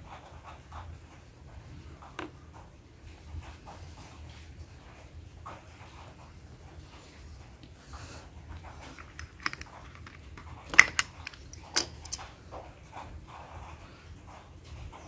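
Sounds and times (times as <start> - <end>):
crayons clicking in plastic box: 8.8 - 12.2.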